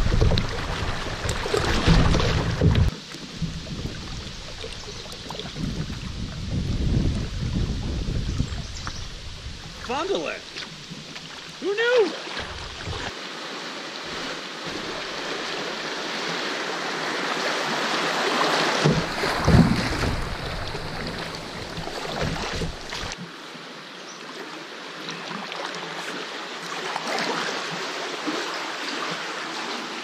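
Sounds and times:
wind buffeting microphone: 0.0 - 10.0
river riffle rushing and splashing: 0.0 - 30.0.

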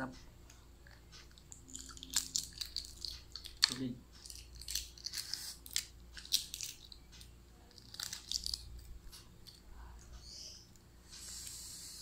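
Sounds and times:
eggshell crackling as peeled: 0.8 - 9.7.

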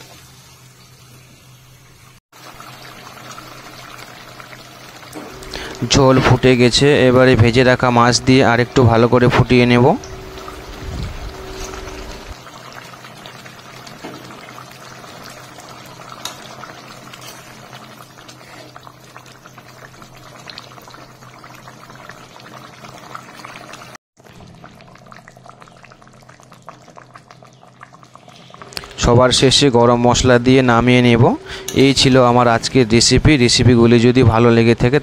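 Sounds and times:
curry bubbling in a pan: 2.4 - 5.9, 10.1 - 28.9.

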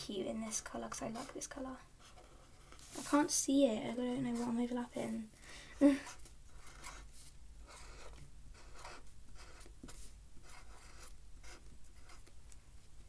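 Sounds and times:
felt-tip pen scratching on paper: 6.0 - 12.3.

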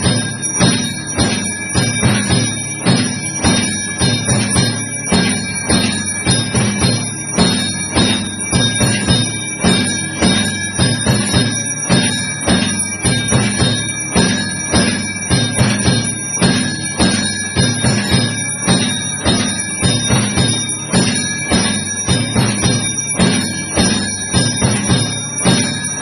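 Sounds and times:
bells ringing: 0.0 - 26.0
steady drum beat: 0.0 - 26.0.

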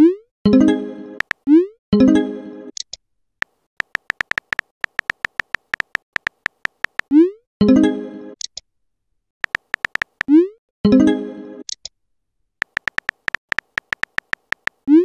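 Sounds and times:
keyboard tap clicks: 1.2 - 1.4, 3.4 - 7.1, 9.4 - 10.3, 12.6 - 14.8.

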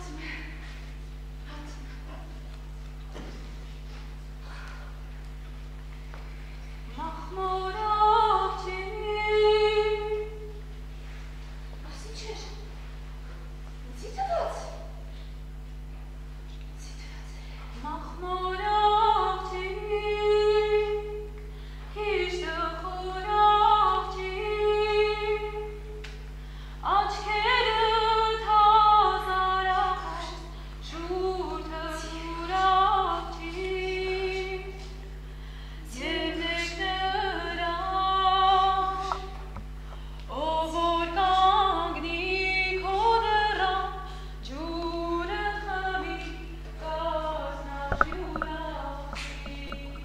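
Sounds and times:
low hum: 0.0 - 50.0
woman singing slowly: 6.9 - 10.6, 17.8 - 21.4, 26.8 - 35.0, 35.9 - 39.4, 40.3 - 50.0.

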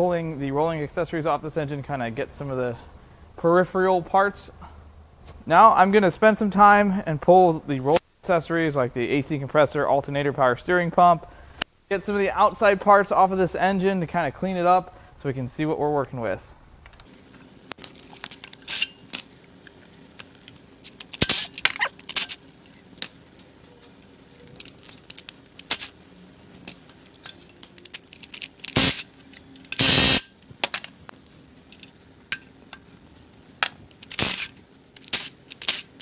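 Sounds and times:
faint steady hum: 0.0 - 36.0
metal tools and parts clinking: 17.8 - 19.2, 26.6 - 30.9, 31.6 - 32.9.

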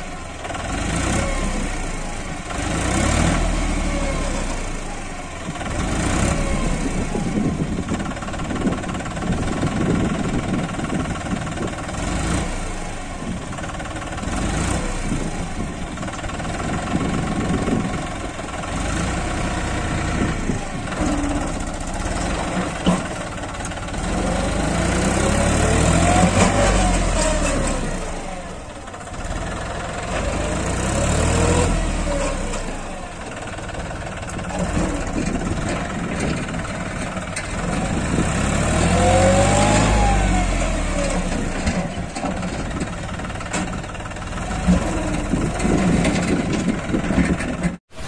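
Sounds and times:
tractor diesel engine revving: 0.0 - 48.0.

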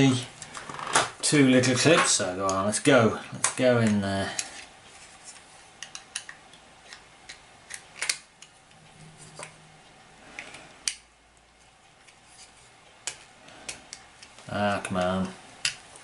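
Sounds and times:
sharp plastic snaps: 5.8 - 8.6.

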